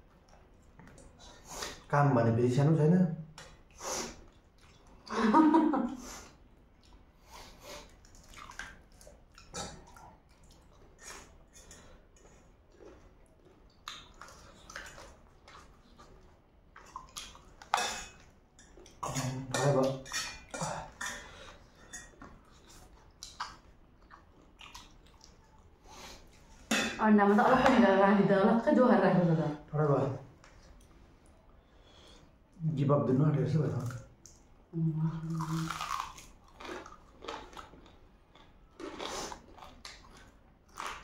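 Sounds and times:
chewing and slurping: 0:03.4 - 0:05.1, 0:06.1 - 0:26.7, 0:35.3 - 0:41.0.

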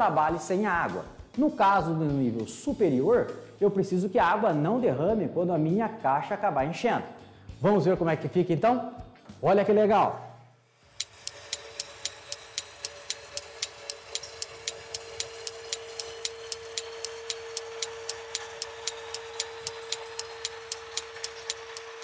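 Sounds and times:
steady hum: 0:10.2 - 0:22.0
clock ticking: 0:10.9 - 0:22.0.

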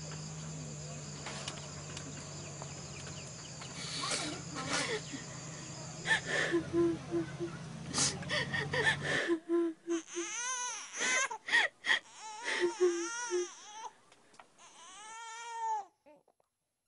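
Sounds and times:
infant crying: 0:08.8 - 0:13.9, 0:14.6 - 0:16.0.

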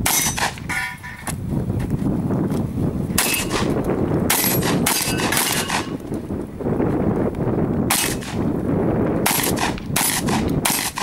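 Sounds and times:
shotgun shots: 0:03.2 - 0:03.7, 0:04.3 - 0:06.0, 0:07.9 - 0:08.4, 0:09.2 - 0:11.0.

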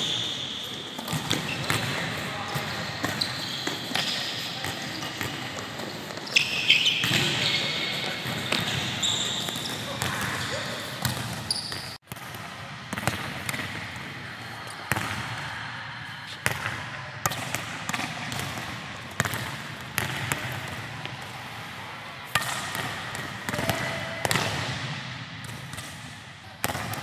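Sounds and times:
volleyball smacks echoing: 0:22.3 - 0:27.0.

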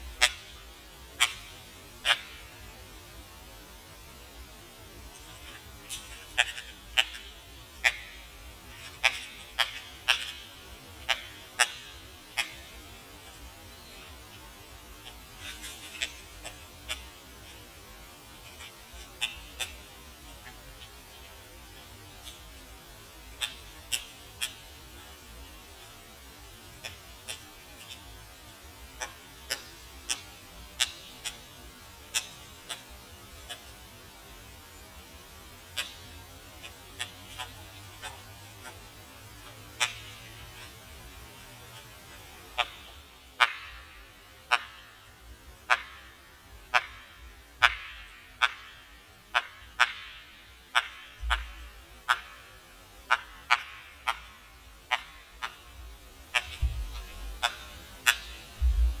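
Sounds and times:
steady low hum: 0:00.0 - 0:59.0
low steady hum: 0:51.2 - 0:59.0.

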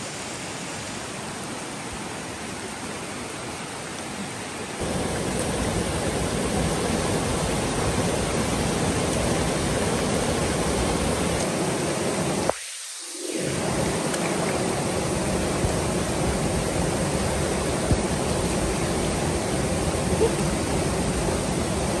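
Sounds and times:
river rapids roaring: 0:01.6 - 0:12.5, 0:13.5 - 0:22.0.

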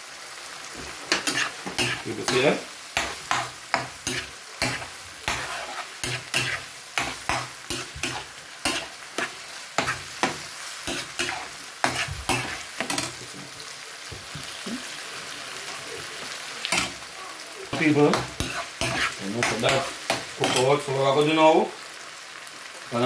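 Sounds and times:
oil sizzling: 0:00.0 - 0:23.0
spoon scraping frying pan: 0:00.8 - 0:13.6, 0:16.7 - 0:20.9.

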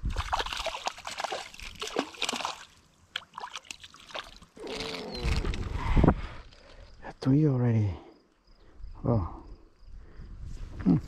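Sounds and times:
water splashing and sloshing: 0:00.0 - 0:05.5.

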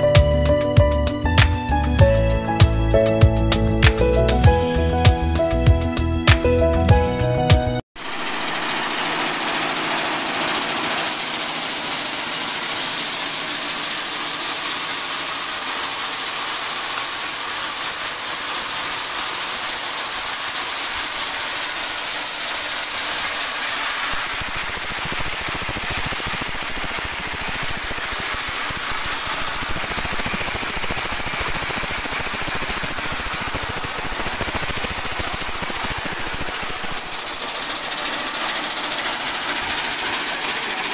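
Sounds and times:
vibrating sieve rattling: 0:08.0 - 0:40.9
deeper rattle: 0:17.2 - 0:40.9.

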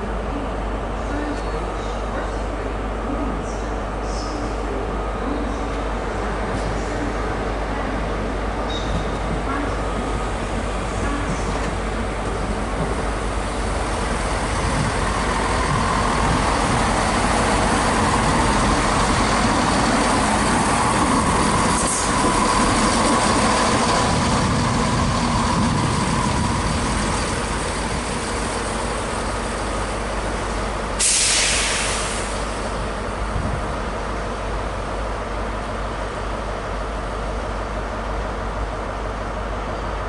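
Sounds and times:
diesel train passing: 0:00.0 - 0:40.0
wheels rumbling on track: 0:05.0 - 0:31.2
air hiss: 0:31.0 - 0:32.6.

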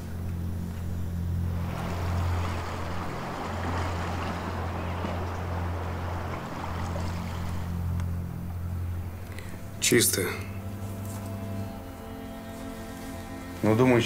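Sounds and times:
steady low hum: 0:00.0 - 0:14.0
wind: 0:00.0 - 0:14.0
sea surf: 0:01.4 - 0:10.3.

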